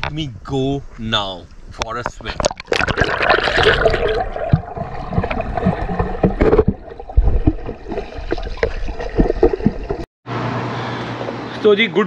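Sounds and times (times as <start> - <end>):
low underwater thuds: 1.6 - 10.1
underwater bubbling and gurgling: 2.4 - 10.0.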